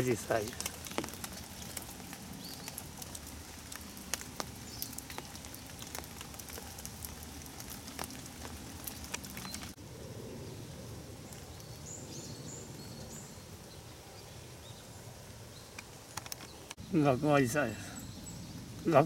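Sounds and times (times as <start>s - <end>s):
raindrops tapping on umbrella: 0.0s - 9.8s
steady hiss of rain: 0.0s - 19.0s.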